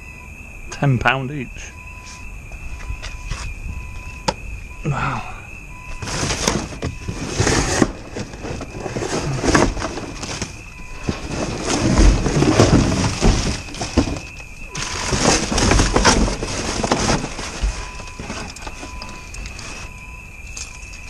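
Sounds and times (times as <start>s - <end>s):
rustling cardboard and plastic: 5.8s - 21.0s
knocks and bumps: 5.9s - 20.0s.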